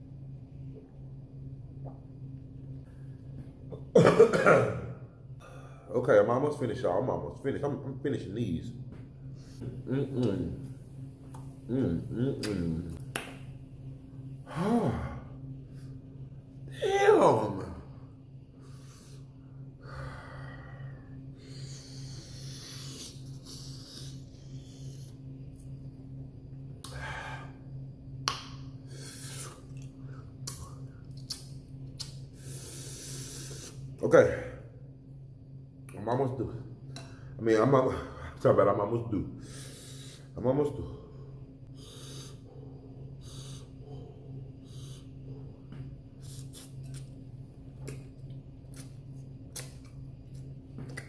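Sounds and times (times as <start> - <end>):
steady low hum: 0.0 - 51.0
mouth click: 12.2 - 13.3, 29.7 - 32.2
man breathing sharply and sniffing: 28.9 - 29.6, 32.4 - 33.8, 39.4 - 40.4, 41.7 - 42.6
mouth clicks and slurps: 29.2 - 32.2, 46.2 - 47.2, 47.8 - 51.0
man breathing hard through mouth: 41.7 - 42.5.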